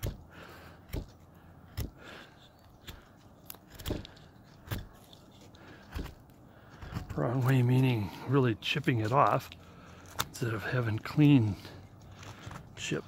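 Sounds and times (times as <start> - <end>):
carving tool chipping wood: 0.0 - 7.6
wood splitting cracks: 0.0 - 7.6, 9.3 - 11.2.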